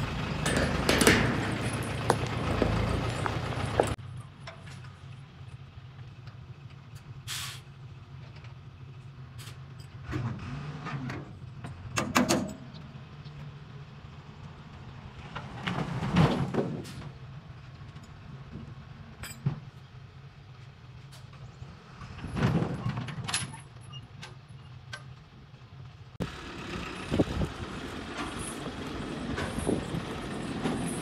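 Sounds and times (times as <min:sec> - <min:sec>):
metal clanking and scraping: 0:00.3 - 0:05.0, 0:09.4 - 0:12.9, 0:15.2 - 0:17.2, 0:22.1 - 0:25.2, 0:28.0 - 0:31.0.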